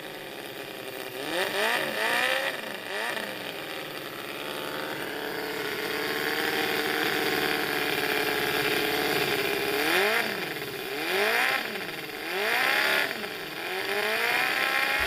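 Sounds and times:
model engine revving: 0.0s - 15.0s.

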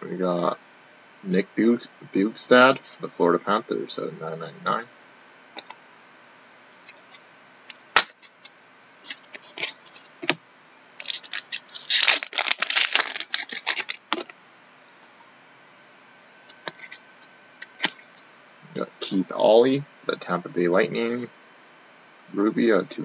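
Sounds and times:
cards clicking and rustling: 11.0s - 14.3s
packaging crackling: 11.0s - 14.4s.

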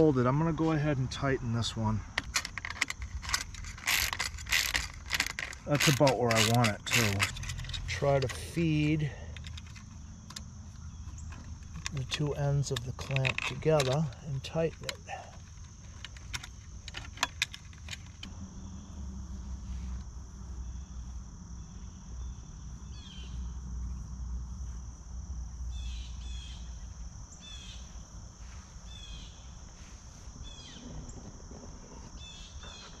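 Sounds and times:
insect chirring: 0.0s - 33.0s
low rumble: 18.2s - 22.8s.

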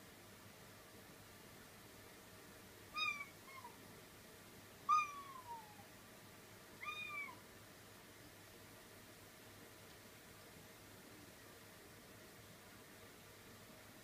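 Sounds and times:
cat meowing: 3.0s - 3.8s, 4.9s - 5.9s, 6.8s - 7.4s.

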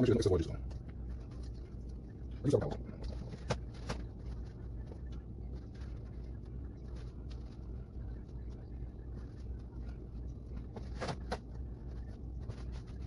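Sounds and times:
low steady hum: 0.0s - 13.0s
paper towel patting and rustling: 3.0s - 13.0s.

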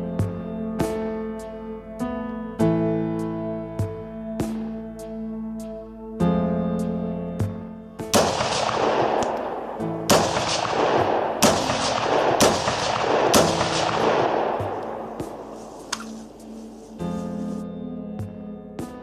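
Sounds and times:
rifle shots echoing: 8.1s - 16.9s.

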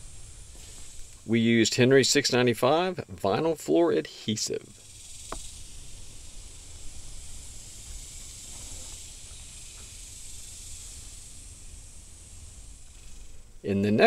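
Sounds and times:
high hiss: 0.0s - 14.0s
faint ticks: 4.8s - 11.5s.

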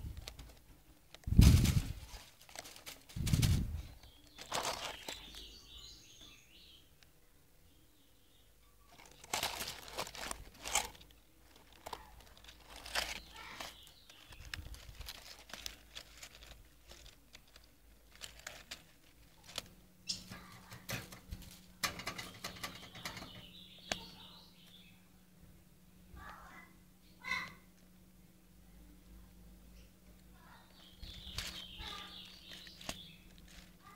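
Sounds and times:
rustling and scraping: 0.0s - 5.6s, 8.8s - 24.2s, 30.7s - 33.9s
low steady hum: 0.0s - 33.9s.

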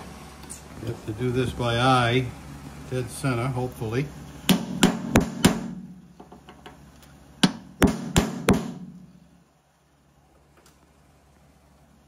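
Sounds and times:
hammer striking metal punch: 4.5s - 5.9s, 7.4s - 9.0s.

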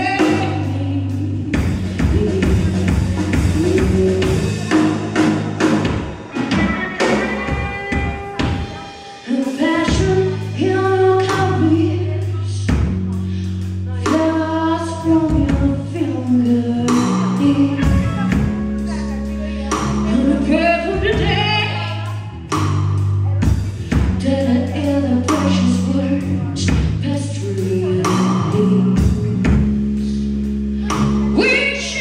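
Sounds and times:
woman singing: 0.0s - 5.3s, 6.4s - 22.4s, 23.2s - 30.1s, 30.8s - 32.0s
electric guitar: 0.0s - 12.2s
bass guitar: 0.0s - 32.0s
drum kit: 0.0s - 32.0s.

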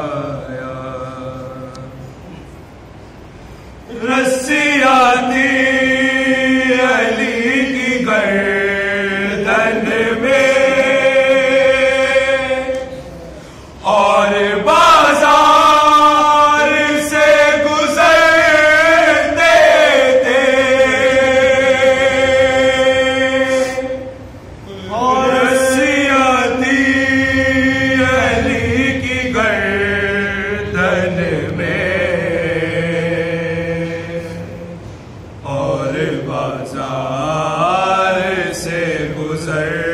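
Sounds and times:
man chanting: 3.9s - 34.8s
man chanting a lament: 24.7s - 34.8s.

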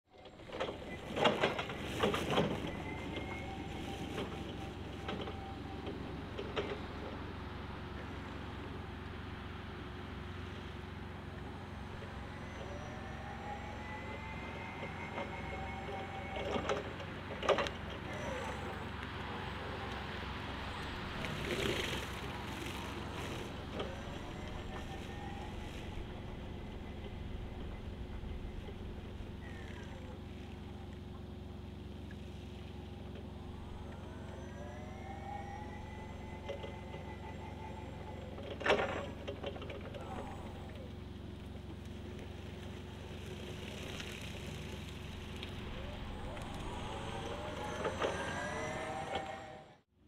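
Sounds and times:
electric forklift driving past: 0.1s - 50.0s
forklift clattering over paving: 0.2s - 8.0s
steady low noise: 17.8s - 38.6s, 43.9s - 49.9s.

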